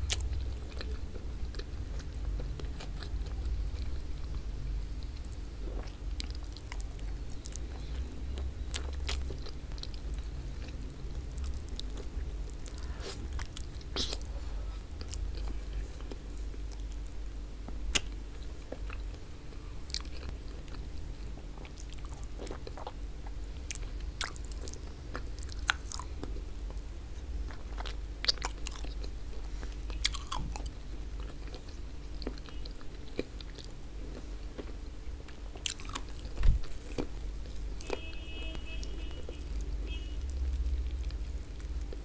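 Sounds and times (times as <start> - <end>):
steady low hum: 0.0 - 42.0
wet chewing and mouth smacks: 5.0 - 14.4, 29.7 - 38.0.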